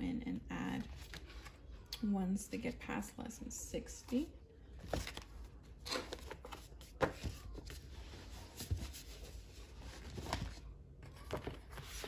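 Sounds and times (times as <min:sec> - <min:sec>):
paper pages rustling: 0:04.8 - 0:12.0.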